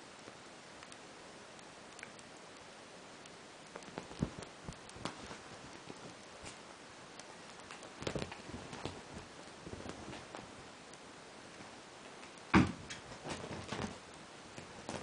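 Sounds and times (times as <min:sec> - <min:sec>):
steady hiss: 0:00.0 - 0:15.0
bedding rustling: 0:03.8 - 0:06.7, 0:07.4 - 0:15.0
cat thumping and kicking: 0:12.5 - 0:14.0.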